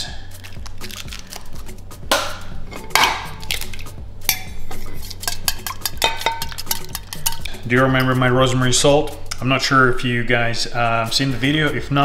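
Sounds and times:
eggs cracked against steel bowl: 0.0s - 7.6s
wire whisk beating eggs: 4.8s - 8.3s.

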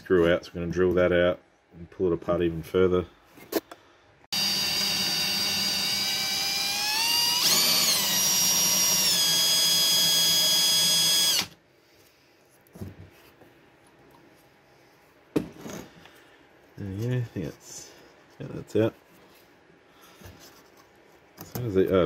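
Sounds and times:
cordless drill motor whine: 4.3s - 11.6s.

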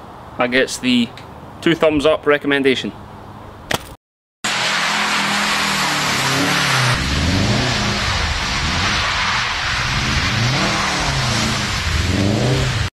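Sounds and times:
car engine revving: 4.5s - 12.9s
tyre noise on wet tarmac: 4.5s - 12.9s.

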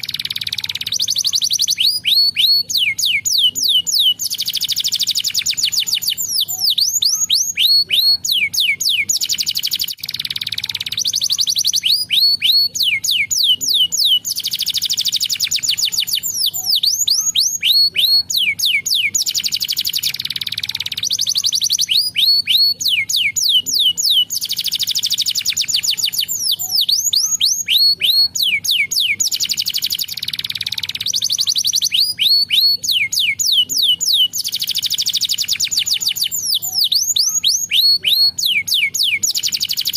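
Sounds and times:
canary singing: 0.0s - 39.9s.

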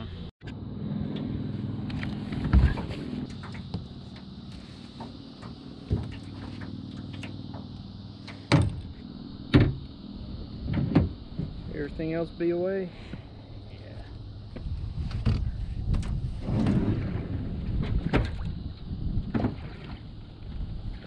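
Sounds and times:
boat engine idling: 0.0s - 15.9s
loud sharp knocks: 9.5s - 9.8s.

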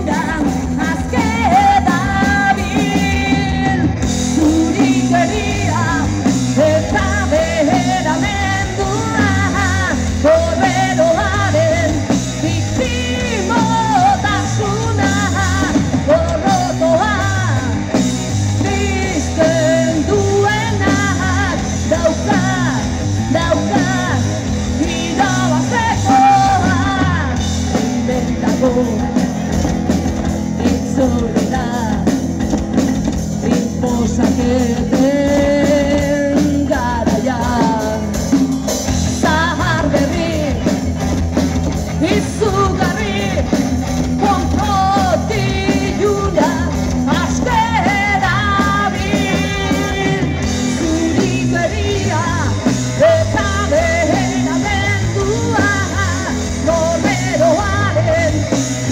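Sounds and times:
bass guitar: 0.0s - 58.9s
drum kit: 0.0s - 58.9s
electric guitar: 0.0s - 58.9s
woman singing: 0.0s - 58.9s.

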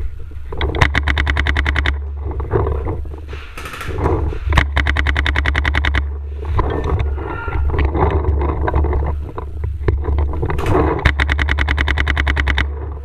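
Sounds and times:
low rumble: 0.0s - 13.0s
paintball marker rapid firing: 0.6s - 2.1s, 3.4s - 6.2s, 10.6s - 12.8s.

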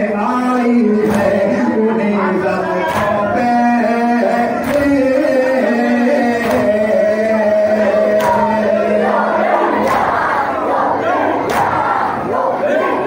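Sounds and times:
men chanting a lament: 0.0s - 13.0s
chest beating in unison: 2.6s - 13.0s.

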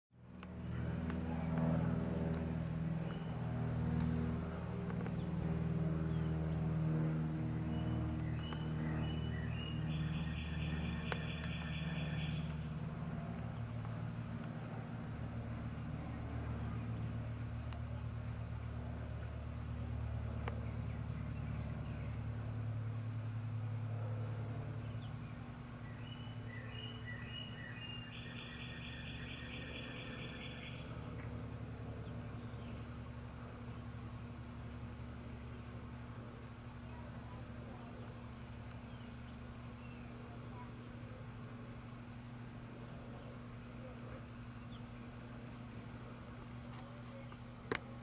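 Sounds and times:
birds chirping: 0.2s - 18.1s, 24.4s - 48.0s
low machine hum: 0.2s - 48.0s
birds whistling calls: 7.0s - 12.7s, 25.1s - 31.3s
bird rapid trill: 8.5s - 12.6s.

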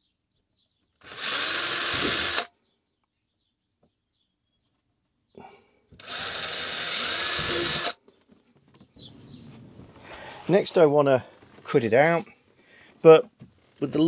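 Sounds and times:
cordless drill boring plastic: 1.0s - 2.5s, 6.0s - 8.0s.

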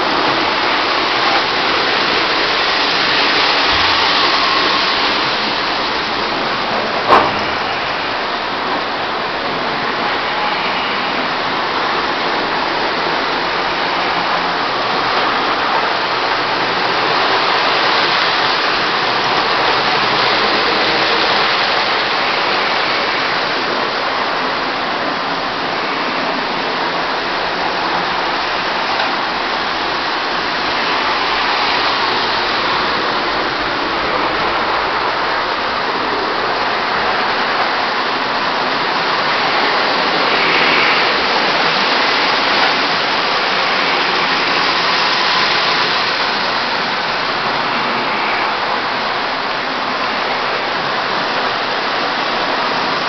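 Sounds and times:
toy trains rumbling on metal rails: 0.0s - 8.7s.

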